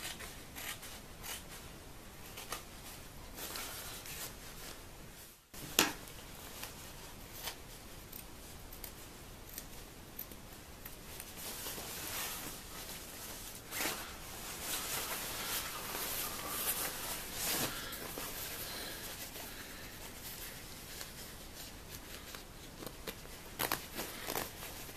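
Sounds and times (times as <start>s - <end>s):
padded fabric rustling: 11.3s - 24.9s
scissors snipping fabric: 22.8s - 24.6s.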